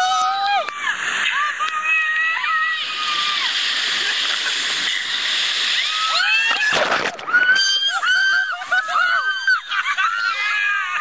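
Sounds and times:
people screaming and whooping: 0:00.0 - 0:11.0
wave splash: 0:02.9 - 0:08.8.

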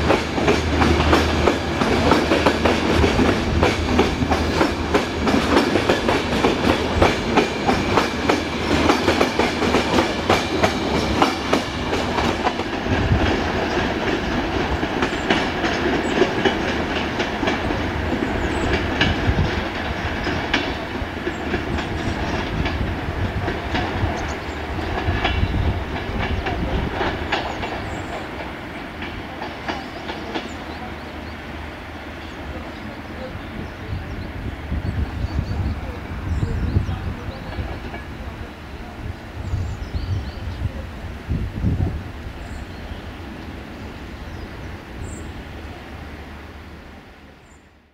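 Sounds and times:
train wheels clattering over joints: 0:00.0 - 0:38.3.

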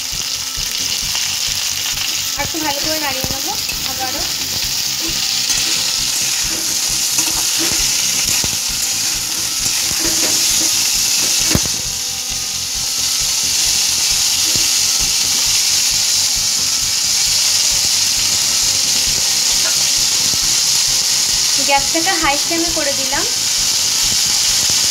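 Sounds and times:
vegetables sizzling in oil: 0:00.0 - 0:24.9
metal spatula scraping pan: 0:02.5 - 0:12.0.

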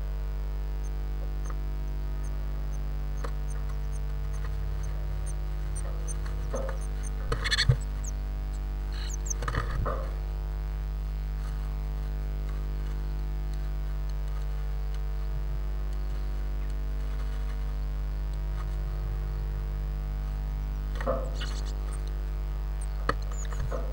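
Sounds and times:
steady electrical hum: 0:00.0 - 0:23.9
bird scratching on nest: 0:01.4 - 0:10.2, 0:11.3 - 0:19.4, 0:20.2 - 0:23.9.

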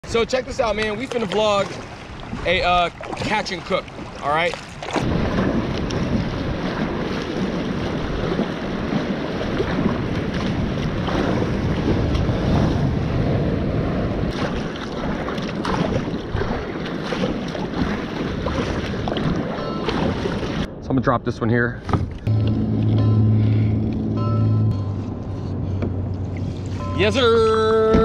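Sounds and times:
paddle blades splashing: 0:00.0 - 0:20.7, 0:21.8 - 0:28.0
water splashing and sloshing: 0:00.0 - 0:20.8, 0:21.8 - 0:28.0
wind on microphone: 0:01.6 - 0:20.8.

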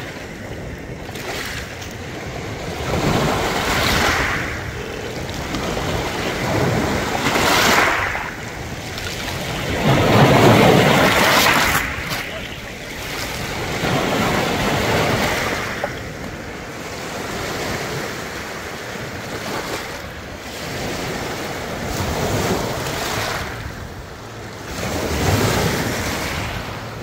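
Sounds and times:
waves washing over pebbles: 0:00.0 - 0:27.0.

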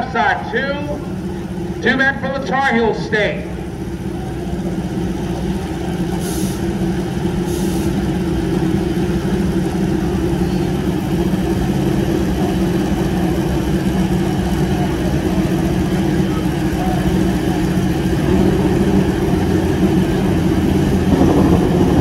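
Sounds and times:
motorcycle engines running: 0:00.0 - 0:22.0
short hisses: 0:06.2 - 0:06.6.

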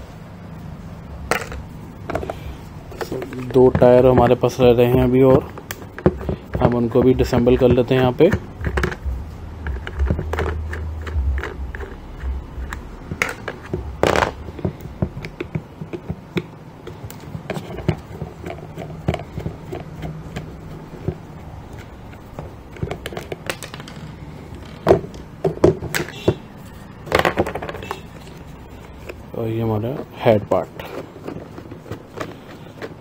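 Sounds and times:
plastic parts knocking on wooden table: 0:01.3 - 0:02.4, 0:03.0 - 0:26.4, 0:27.1 - 0:28.0.

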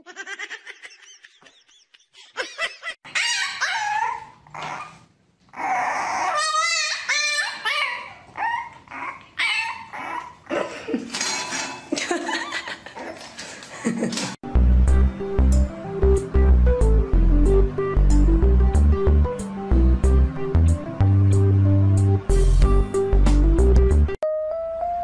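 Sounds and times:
puppies whining and yipping: 0:03.1 - 0:10.5.

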